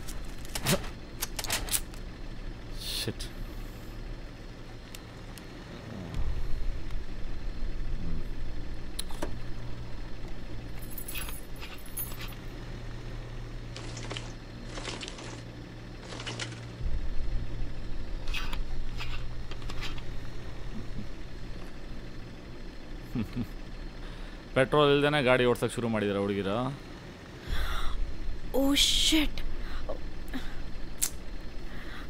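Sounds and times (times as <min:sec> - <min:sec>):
ignition clicks and key jingles: 0:10.7 - 0:12.4.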